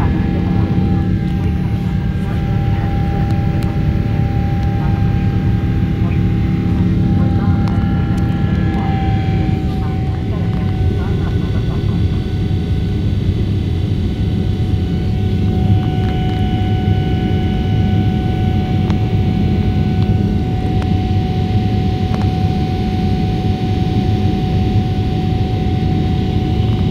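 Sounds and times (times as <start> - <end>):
steady whine: 0.0 - 26.9.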